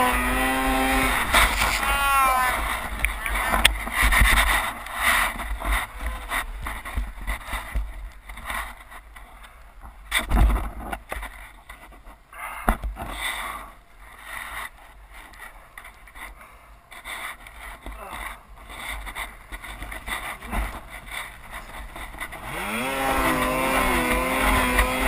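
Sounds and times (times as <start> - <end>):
muffled snowmobile engine: 0.0 - 12.2, 12.8 - 25.0.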